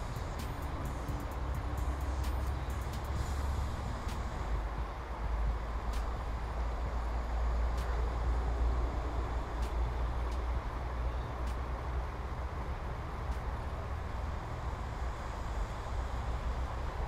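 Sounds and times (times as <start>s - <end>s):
faint clicks: 9.6s - 10.5s, 11.4s - 11.7s.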